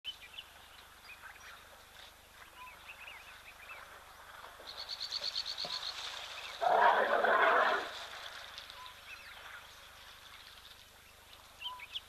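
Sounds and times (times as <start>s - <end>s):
birds chirping and whistling: 11.6s - 12.0s.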